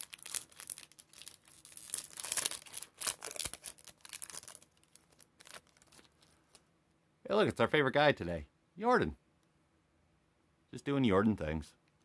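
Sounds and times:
wrapper tearing and crinkling: 0.0s - 6.6s.

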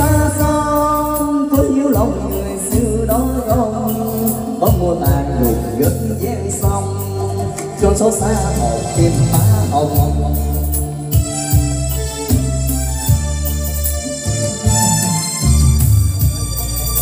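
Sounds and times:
man singing through microphone: 0.0s - 11.4s
karaoke backing track: 0.0s - 17.0s.

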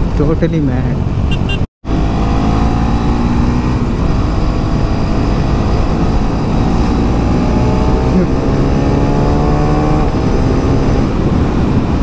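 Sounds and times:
motorcycle engine accelerating: 1.1s - 12.0s
wind rush: 3.0s - 12.0s.

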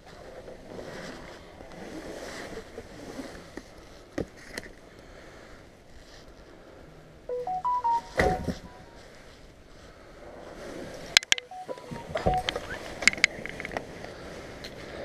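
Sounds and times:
electronic beeps: 7.3s - 9.0s, 11.3s - 13.0s.

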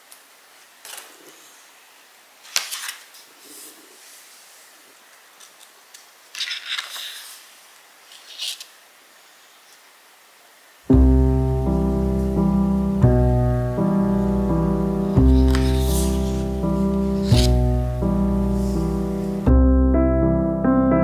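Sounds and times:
book pages turning: 0.8s - 1.7s, 2.4s - 8.8s, 15.1s - 19.4s
soft piano music: 10.9s - 21.0s.

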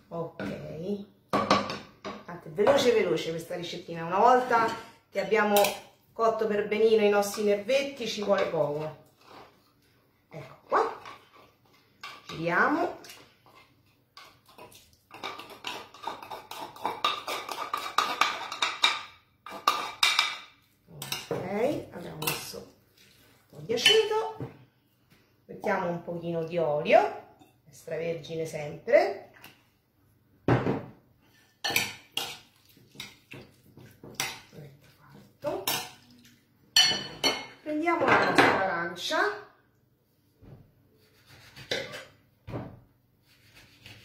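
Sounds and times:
metal spoon scraping in wooden mortar: 15.1s - 18.9s
dishes and cutlery clinking: 36.8s - 38.6s
knife on wooden cutting board: 41.0s - 42.1s, 43.2s - 44.0s.

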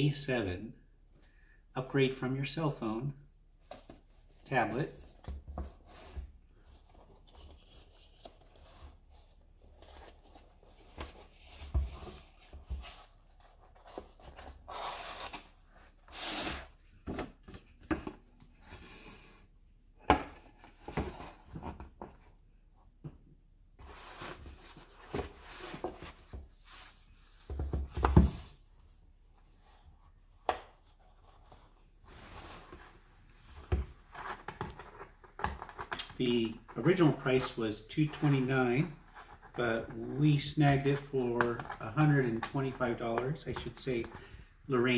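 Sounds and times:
cardboard rustling and scraping: 3.6s - 19.3s, 20.3s - 22.4s, 23.8s - 28.7s.

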